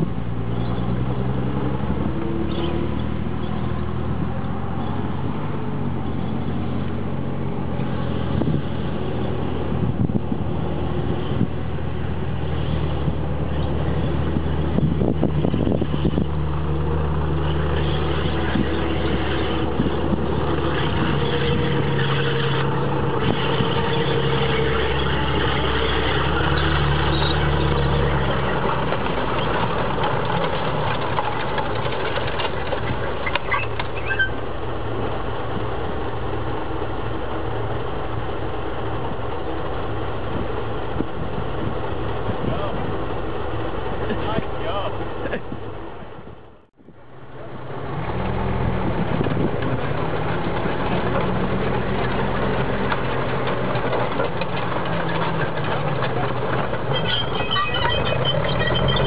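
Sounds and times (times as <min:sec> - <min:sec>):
tank engine deep drone: 0:00.0 - 0:59.0
track clanks: 0:11.2 - 0:46.7, 0:47.8 - 0:59.0.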